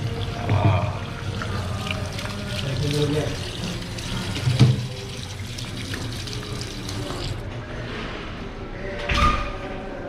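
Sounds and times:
hands washing under water: 0.0 - 7.4
tap water running into sink: 0.0 - 7.4.

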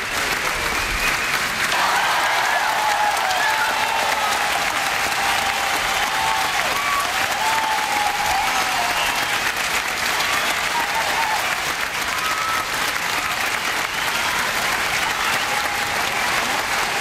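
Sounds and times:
crowd applauding: 0.0 - 17.0
whistles and cheers: 0.1 - 17.0.

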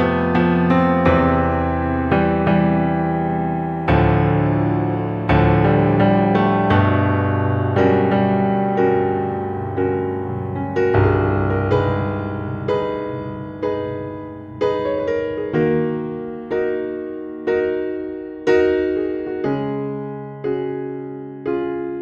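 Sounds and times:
slow gentle piano music: 0.0 - 22.0.

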